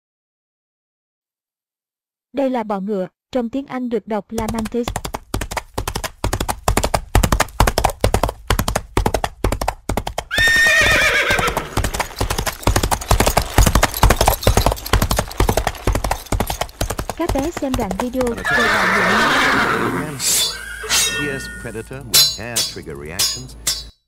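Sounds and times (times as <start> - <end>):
horse hooves clip-clopping: 4.4 - 19.8
horse whinny: 10.3 - 12.6, 18.3 - 21.7.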